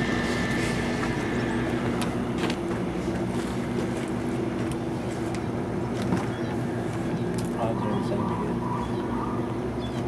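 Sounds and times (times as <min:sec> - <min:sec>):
engine humming: 0:00.0 - 0:07.6.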